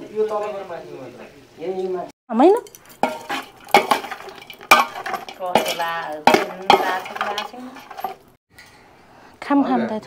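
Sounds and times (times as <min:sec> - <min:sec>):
dishes and cutlery clinking: 0:02.5 - 0:08.3.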